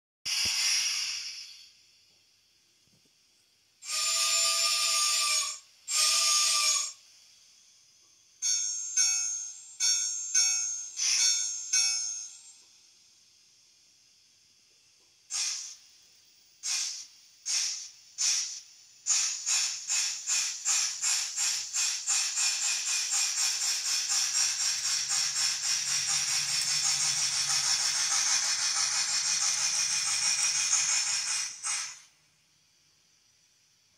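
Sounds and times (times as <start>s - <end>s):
hissy steam exhaust chuffs: 0.3s - 1.9s, 15.3s - 32.2s.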